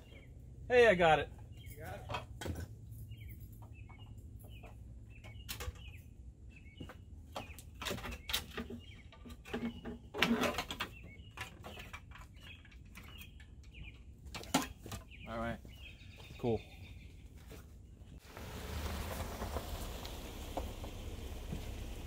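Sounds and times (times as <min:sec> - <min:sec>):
small bird chirping: 0:10.8 - 0:18.2.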